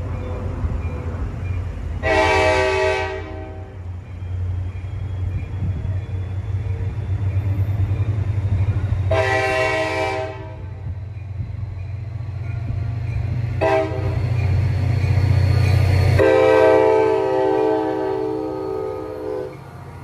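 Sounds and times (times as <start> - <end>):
low rumble of train: 0.0 - 20.0
train air horn blasts: 2.0 - 3.8, 9.1 - 10.7, 13.6 - 14.2, 16.2 - 19.6.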